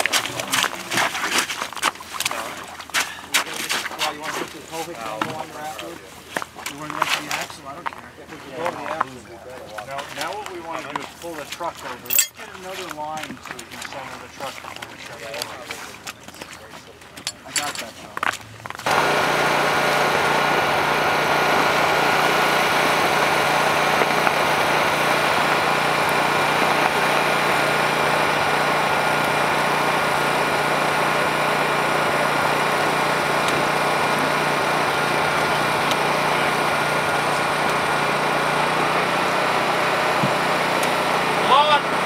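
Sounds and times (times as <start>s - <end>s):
small engine running steadily: 18.7s - 42.0s.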